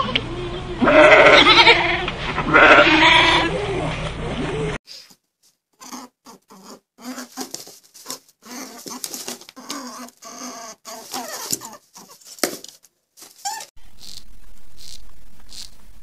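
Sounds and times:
echidna squeaky grunts and snuffles: 5.8 - 7.5.

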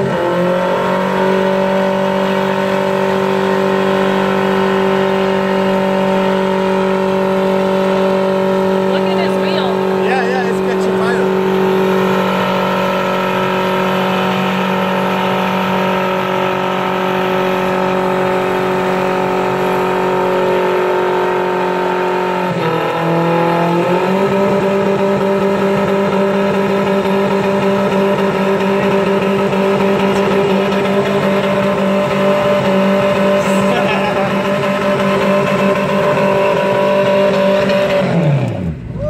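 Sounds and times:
engine at high revs: 0.0 - 38.9
tyres spinning on pavement: 24.1 - 39.0.

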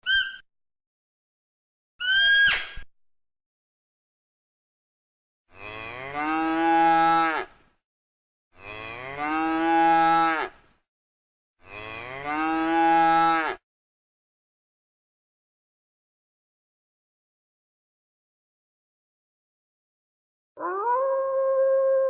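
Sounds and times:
cow mooing: 11.6 - 13.6.

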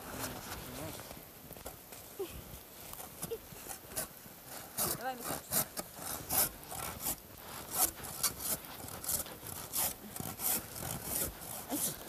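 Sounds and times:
hand saw cutting wooden log: 3.9 - 12.0.

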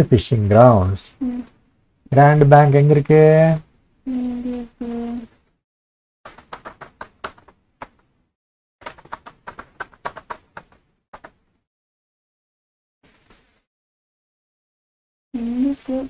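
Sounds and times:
computer keyboard typing: 6.3 - 7.5, 8.8 - 11.3.

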